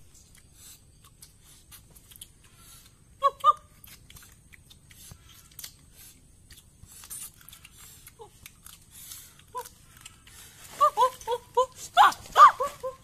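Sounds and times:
leaf rustling: 9.2s - 13.0s.

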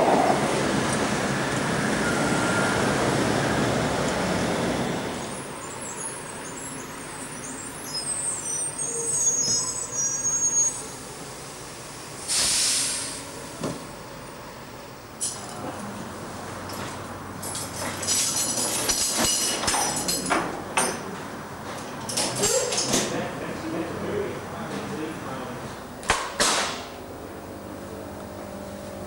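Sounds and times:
tram running on track: 0.0s - 26.1s
bus air brakes hissing: 1.2s - 13.6s.

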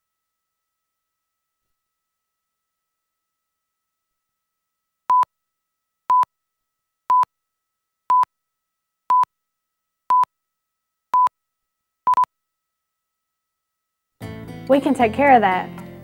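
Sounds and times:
short single-pitch beeps: 12.1s - 12.3s.

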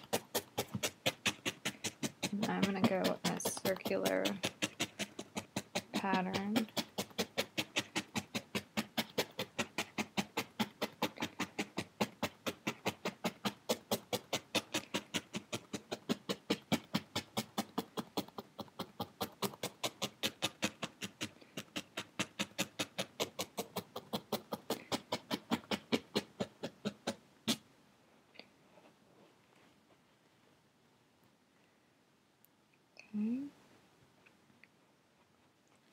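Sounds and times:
felting needle poking wool: 0.0s - 27.7s.

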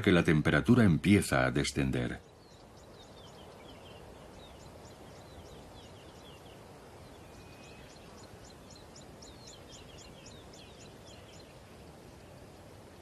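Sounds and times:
steady hiss: 0.0s - 13.0s
small bird chirping rapidly: 2.2s - 11.8s.

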